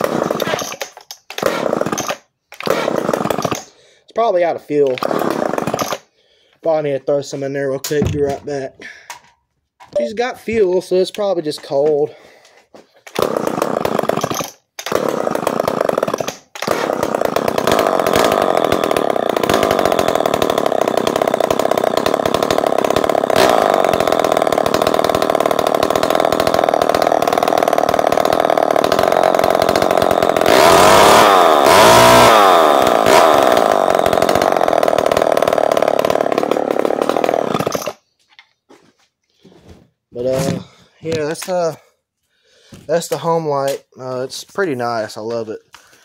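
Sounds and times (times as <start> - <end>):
chainsaw running and revving: 0.0 - 3.7, 4.8 - 6.1, 13.1 - 38.0.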